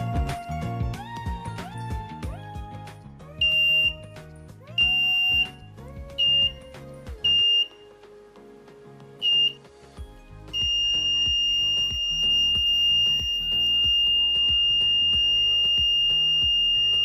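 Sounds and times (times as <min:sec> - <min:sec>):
piezo buzzer beeping: 0:03.4 - 0:04.1, 0:04.8 - 0:05.6, 0:06.2 - 0:06.6, 0:07.2 - 0:07.8, 0:09.2 - 0:09.6, 0:10.5 - 0:17.0.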